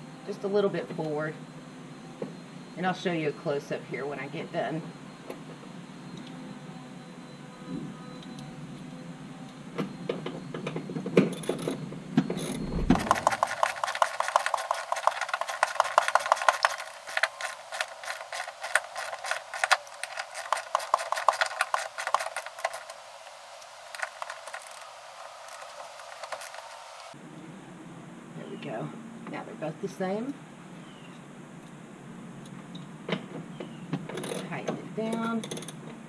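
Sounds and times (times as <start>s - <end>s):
hand ratchet clicking rapidly: 12.9s - 22.9s.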